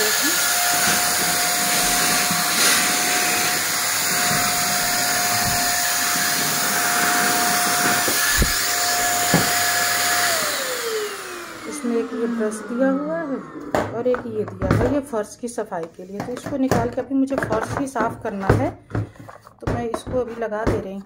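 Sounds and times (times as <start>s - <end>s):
handheld vacuum cleaner running: 0.0s - 15.2s.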